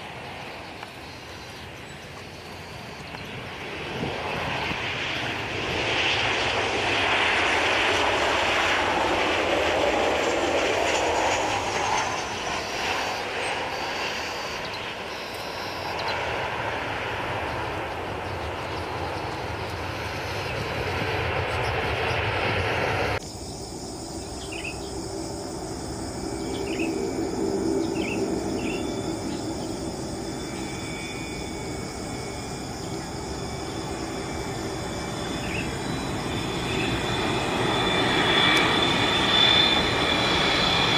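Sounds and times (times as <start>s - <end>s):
jet engines on landing: 0.0s - 40.9s
high steady tones: 23.8s - 40.9s.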